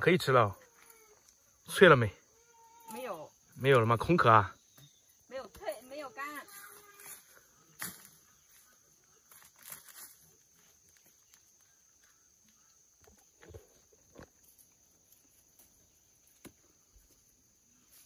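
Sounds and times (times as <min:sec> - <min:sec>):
leaves rustling: 0:05.6 - 0:18.0.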